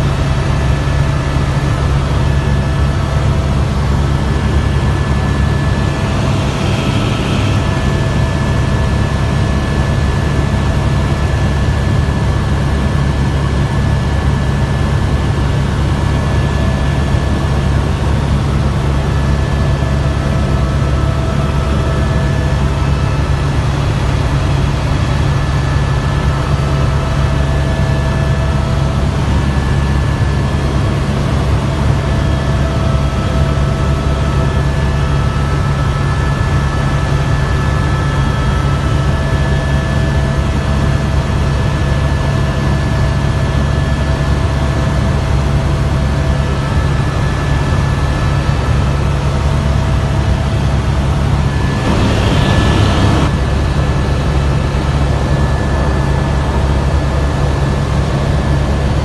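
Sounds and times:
helicopter rotor and engine drone: 0:00.0 - 0:59.0
thin high whine: 0:50.4 - 0:54.5.

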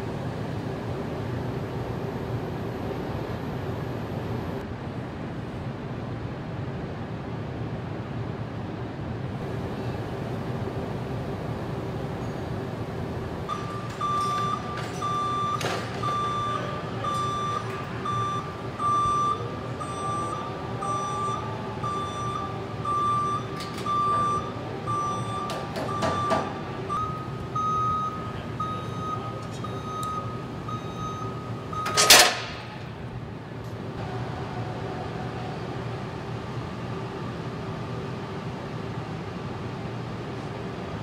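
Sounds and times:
factory machinery hum: 0:00.0 - 0:41.0
motion alarm beeping: 0:13.5 - 0:32.3.

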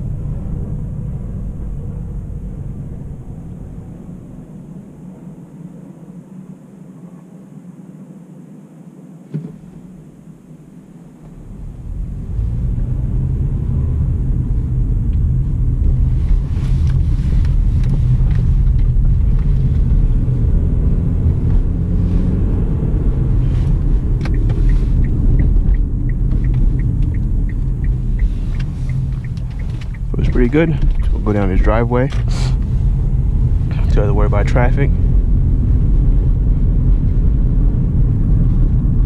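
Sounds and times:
road and engine rumble in car: 0:00.0 - 0:39.0
turn signal ticking: 0:23.3 - 0:34.7.

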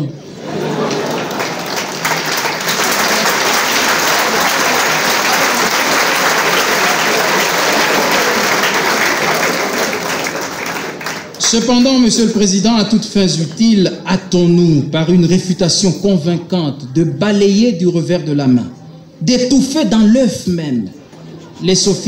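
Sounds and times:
audience applauding: 0:00.5 - 0:11.6.

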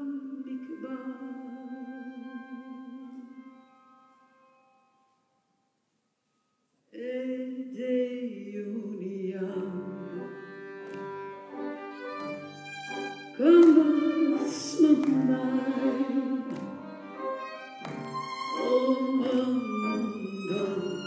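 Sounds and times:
woman singing into a microphone: 0:00.0 - 0:03.5, 0:07.0 - 0:10.4, 0:13.4 - 0:16.7, 0:18.6 - 0:21.0
piano and string ensemble: 0:09.0 - 0:21.0.

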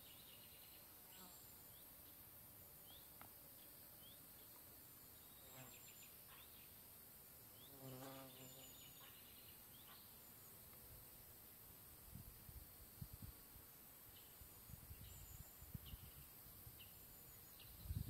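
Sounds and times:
background hiss: 0:00.0 - 0:18.0
flying insect buzzing: 0:07.6 - 0:08.9.

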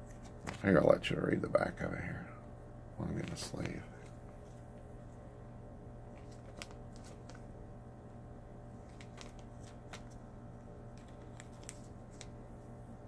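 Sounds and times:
trading cards clicking and rustling: 0:00.0 - 0:00.8, 0:03.1 - 0:04.6, 0:06.1 - 0:07.5, 0:08.7 - 0:10.3, 0:10.9 - 0:12.4
steady low hum: 0:00.0 - 0:13.0.

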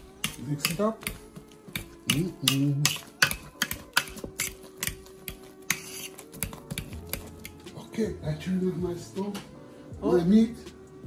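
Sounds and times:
spatula scraping a metal pot: 0:00.0 - 0:07.6.

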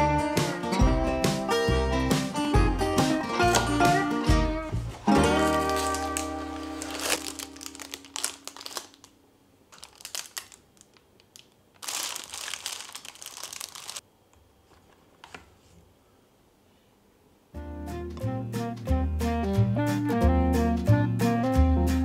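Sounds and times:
plastic and foil wrapper crinkling: 0:05.0 - 0:14.0.

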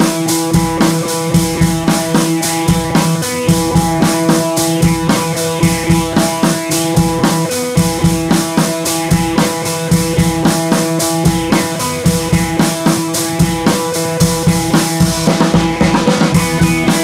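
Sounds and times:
drum kit beat: 0:00.0 - 0:17.0
sustained held notes: 0:07.1 - 0:17.0.

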